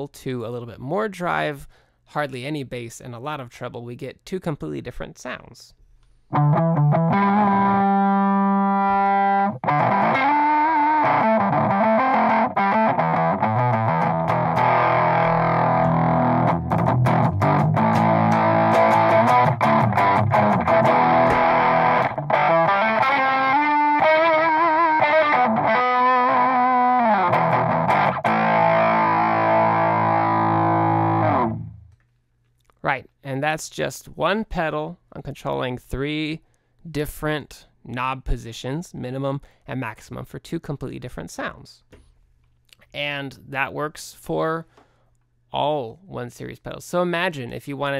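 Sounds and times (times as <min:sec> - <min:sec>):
distorted electric guitar: 0:06.3 - 0:32.0.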